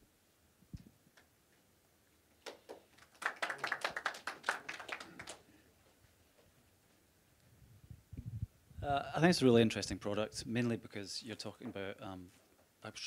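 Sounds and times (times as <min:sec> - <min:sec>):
small audience applause: 0:02.4 - 0:05.6.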